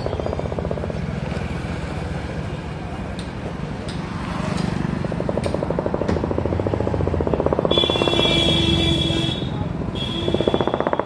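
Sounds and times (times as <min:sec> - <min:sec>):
motorcycle engine running: 0:00.0 - 0:11.0
vehicle horn: 0:07.7 - 0:11.0.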